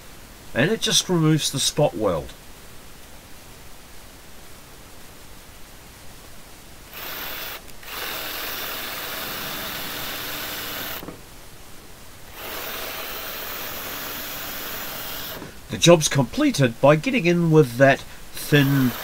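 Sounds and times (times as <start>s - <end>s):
cordless drill boring steel: 6.9s - 11.1s, 12.3s - 15.6s, 18.4s - 19.0s.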